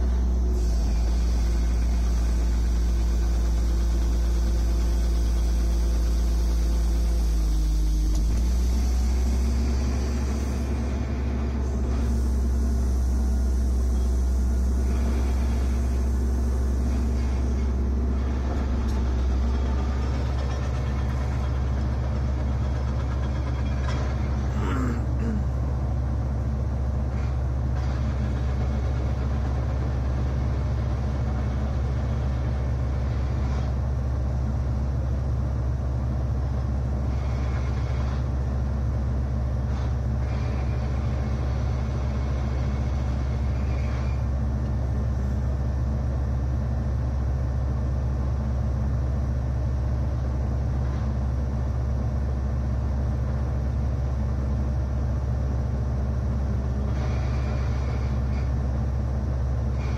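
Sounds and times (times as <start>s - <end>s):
excavator diesel engine idling: 0.0s - 59.9s.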